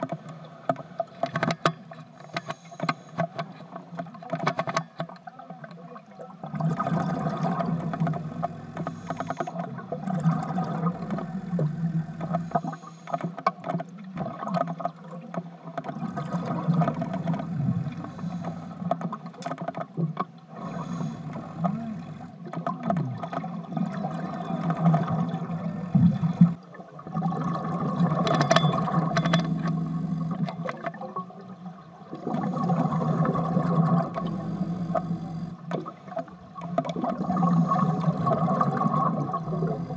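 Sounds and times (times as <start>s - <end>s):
bubbles rumbling underwater: 6.5s - 12.6s, 15.9s - 18.7s, 20.6s - 39.9s
diver breathing through regulator: 8.2s - 9.6s, 10.9s - 13.2s, 16.9s - 18.9s, 20.5s - 22.4s, 37.3s - 38.3s.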